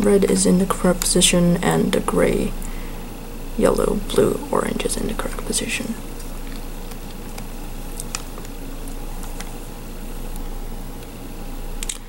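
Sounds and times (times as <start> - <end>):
room noise hum and hiss: 0.0 - 12.0.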